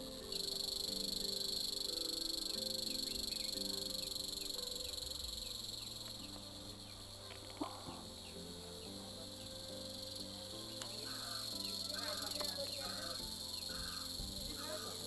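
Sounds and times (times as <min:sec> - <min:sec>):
insects buzzing: 0:00.0 - 0:15.0
soft background music: 0:00.0 - 0:15.0.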